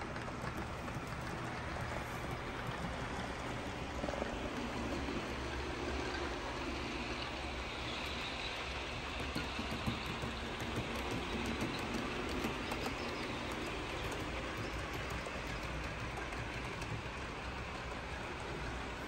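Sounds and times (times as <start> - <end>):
model train wheels clicking: 0.0 - 19.0
steady background hum: 0.0 - 19.0.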